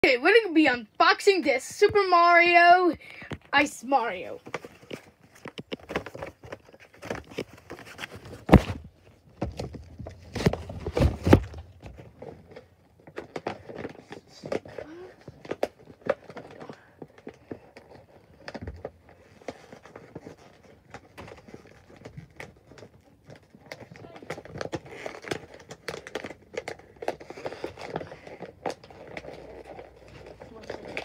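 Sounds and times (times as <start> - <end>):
toy packaging clicks and crinkles: 11.9 - 31.0.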